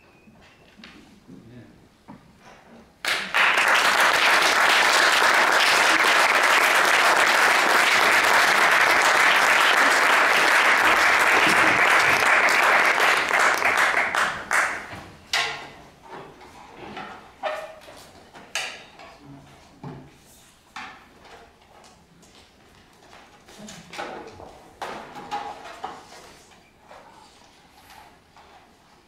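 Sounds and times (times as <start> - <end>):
audience applauding: 3.0 - 14.9.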